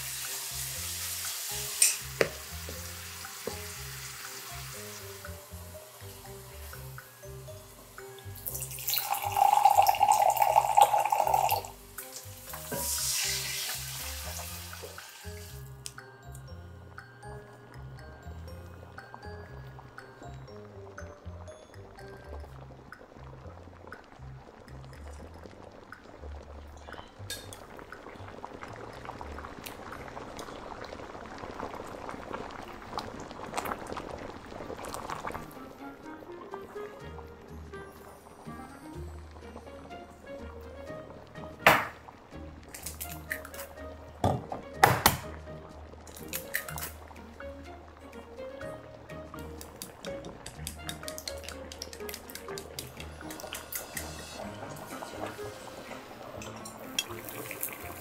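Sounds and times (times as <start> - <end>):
water pouring into a metal pan: 0.0 - 15.7, 46.0 - 47.4, 49.4 - 58.0
stew boiling with bursting bubbles: 0.0 - 58.0
water running into a glass: 7.9 - 15.7, 49.4 - 58.0
wooden spoon stirring: 49.4 - 58.0.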